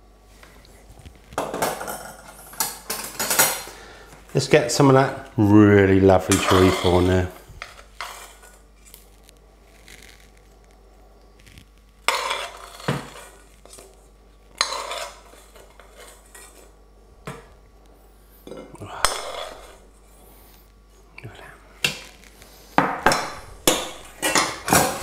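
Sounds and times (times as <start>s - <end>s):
metal spoon scraping frying pan: 6.2s - 8.6s, 12.0s - 13.8s, 14.5s - 16.7s, 18.5s - 19.8s, 23.1s - 25.0s.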